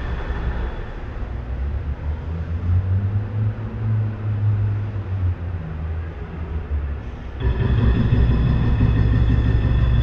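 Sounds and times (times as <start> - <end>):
heavy machinery engine rumble: 7.0 - 10.0.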